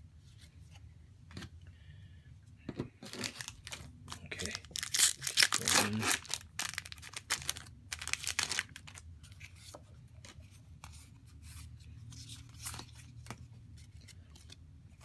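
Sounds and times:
foil wrapper crinkling: 3.0 - 9.0.

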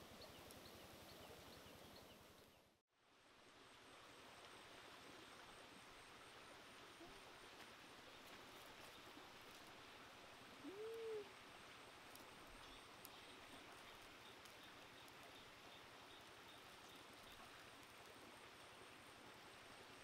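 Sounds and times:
shallow stream hiss: 0.0 - 20.0
bird hooting call: 10.6 - 11.4.

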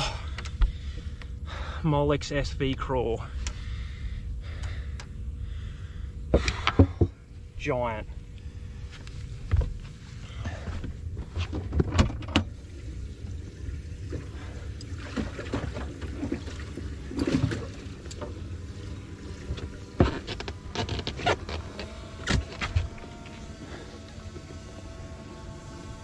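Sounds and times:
steady low rumble: 0.0 - 25.2
faint steady hum: 0.0 - 26.0
knocks and clatter on boat: 6.3 - 7.2, 9.4 - 12.5, 15.1 - 18.5, 19.3 - 24.8.

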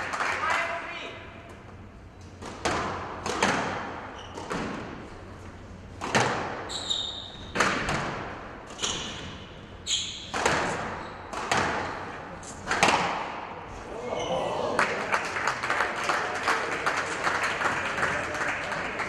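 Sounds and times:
racquet hitting squash ball: 2.3 - 13.6
ball striking walls: 2.4 - 5.0, 6.0 - 9.5, 10.2 - 13.5
shoe squeaks on floor: 4.1 - 4.5, 6.7 - 7.5, 8.7 - 11.3.

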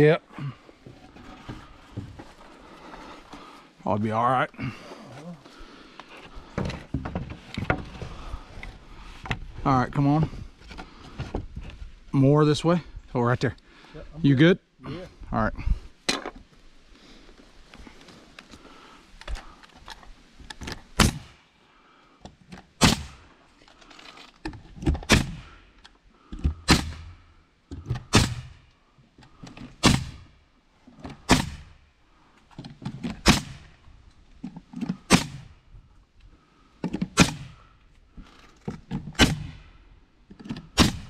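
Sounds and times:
pneumatic nailer firing: 21.0 - 21.3, 22.8 - 23.2, 24.9 - 25.5, 26.6 - 27.1, 28.0 - 28.6, 29.8 - 30.2, 31.2 - 31.7, 35.1 - 35.5, 37.0 - 37.6, 39.2 - 39.6, 40.7 - 41.0.

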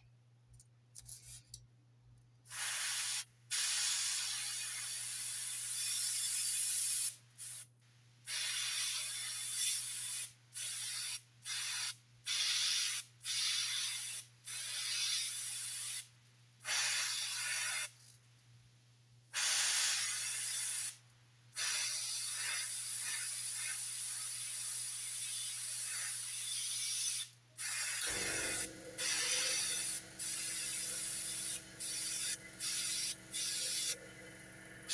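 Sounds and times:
airbrush spraying hiss: 2.5 - 7.7, 26.7 - 34.0.

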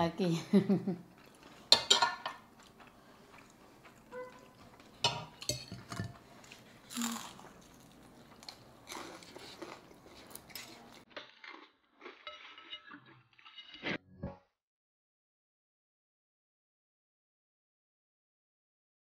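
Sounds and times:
forks clinking on ceramic plates: 1.7 - 2.4
chewing: 2.5 - 5.0, 6.2 - 13.2.

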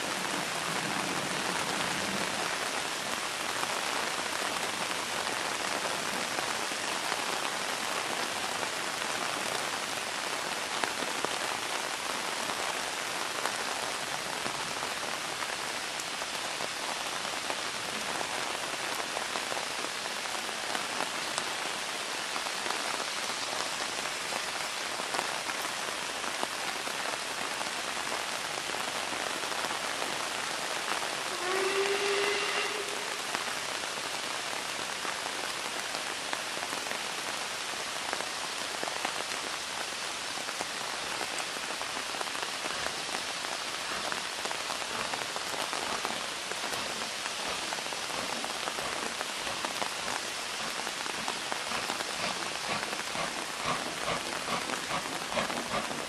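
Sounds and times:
steady hiss: 0.0 - 56.0
steam locomotive whistle: 31.2 - 34.0.

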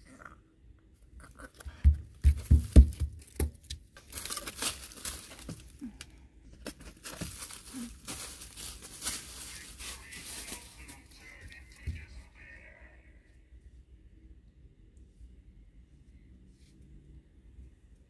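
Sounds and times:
rustling of dry debris: 2.4 - 12.0.

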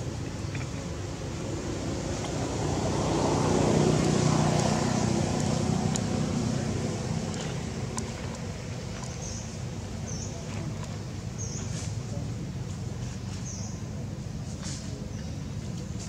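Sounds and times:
passing vehicle engine and road rumble: 0.0 - 11.9.

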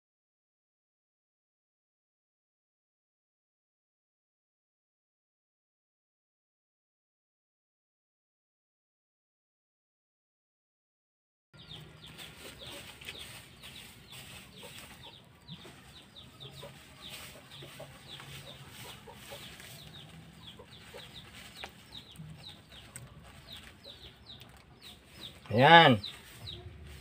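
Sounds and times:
chickens peeping and clucking: 11.6 - 27.0.

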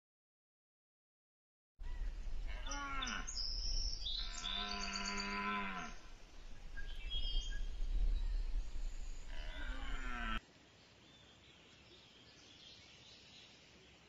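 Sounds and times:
deer calling: 1.8 - 7.0, 9.2 - 10.4
faint birds chirping: 1.8 - 14.0.

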